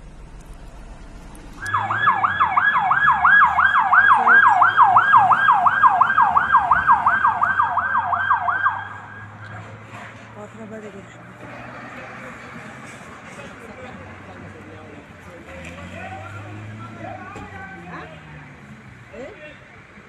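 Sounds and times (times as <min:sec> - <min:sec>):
siren yelping: 0:01.6 - 0:09.5.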